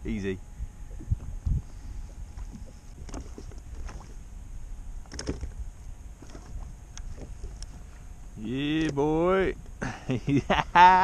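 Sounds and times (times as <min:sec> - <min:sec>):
wind on microphone: 0:00.0 - 0:04.2
water lapping against kayak: 0:00.6 - 0:10.0.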